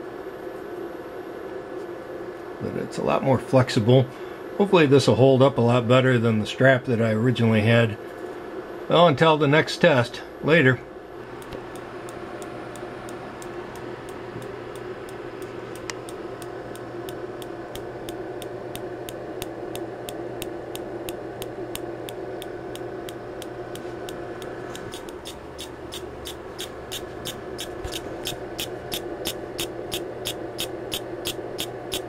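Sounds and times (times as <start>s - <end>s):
electrical hum: 0.0s - 32.0s
spark gap snapping: 11.2s - 32.0s.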